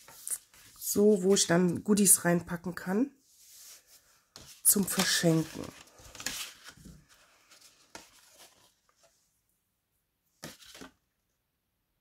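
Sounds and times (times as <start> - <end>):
paper rustling: 0.0 - 1.8, 3.3 - 9.3, 10.4 - 11.0.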